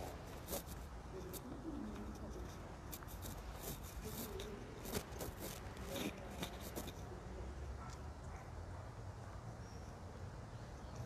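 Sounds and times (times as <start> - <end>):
phone microphone handling rustles: 0.0 - 7.1
low street rumble: 0.0 - 11.0.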